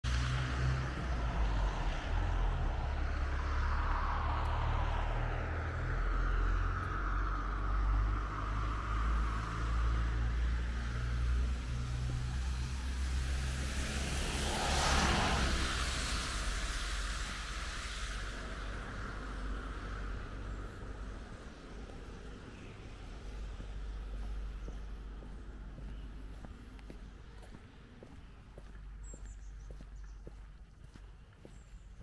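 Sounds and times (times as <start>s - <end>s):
low rumble: 0.0s - 32.0s
car tyres hissing on wet road: 0.1s - 22.4s.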